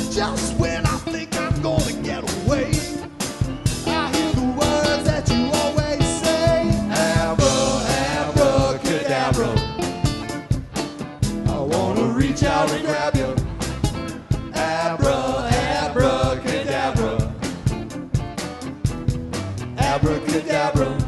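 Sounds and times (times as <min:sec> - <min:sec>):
drum kit beating: 0:00.0 - 0:21.0
guitars: 0:00.0 - 0:21.0
person singing: 0:11.4 - 0:13.4.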